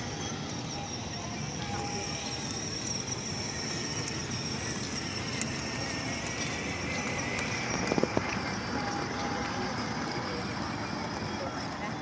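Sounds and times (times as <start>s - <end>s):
thin high whine: 0.0s - 12.0s
faint distant voices: 6.4s - 12.0s.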